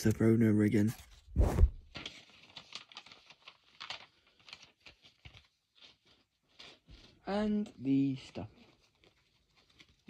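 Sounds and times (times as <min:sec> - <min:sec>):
paper and packaging rustling: 0:00.0 - 0:10.0
loud thump on phone: 0:01.4 - 0:01.8.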